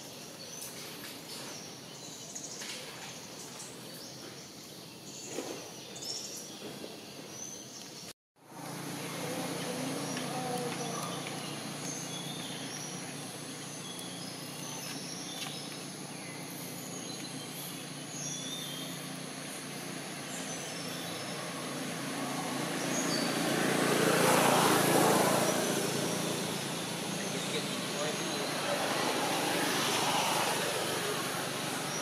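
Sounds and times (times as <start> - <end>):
small birds chirping: 0.0 - 32.0
vehicle passing by: 8.4 - 32.0.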